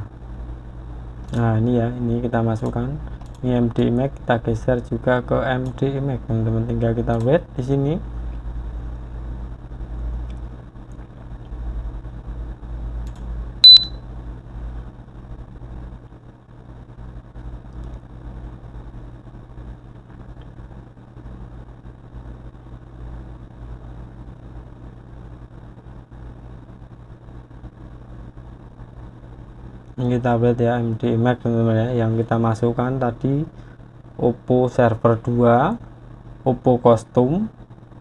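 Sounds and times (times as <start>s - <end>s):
low hum and rumble: 0.0s - 38.0s
high-pitched electronic beep: 13.6s - 14.0s.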